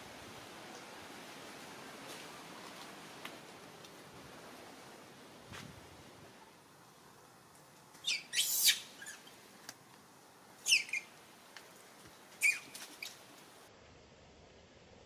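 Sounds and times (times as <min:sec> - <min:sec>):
infant monkey squealing: 0:08.0 - 0:09.3, 0:10.6 - 0:11.1, 0:12.4 - 0:13.1.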